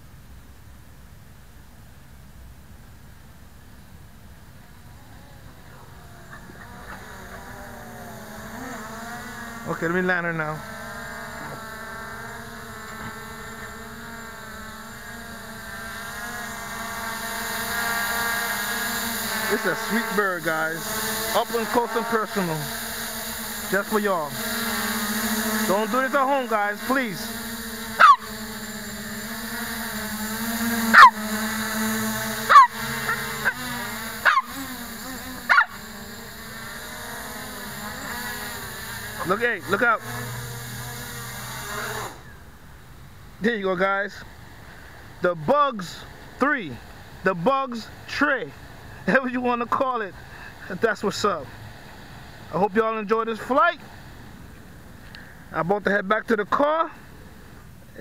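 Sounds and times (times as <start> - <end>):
quadcopter motors humming: 0.0 - 58.0
drone propellers whining: 3.5 - 55.5
dog barking: 28.0 - 28.3, 32.5 - 32.7, 34.2 - 34.5, 35.5 - 35.8.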